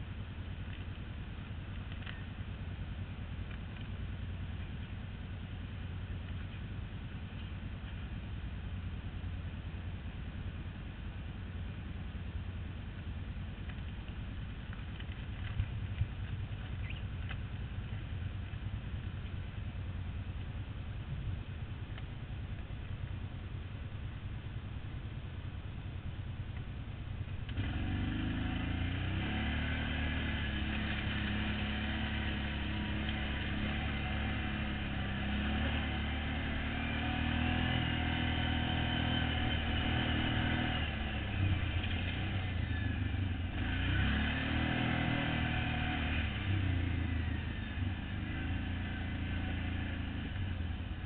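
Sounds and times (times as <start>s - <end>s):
atv engine revving: 13.3s - 51.0s.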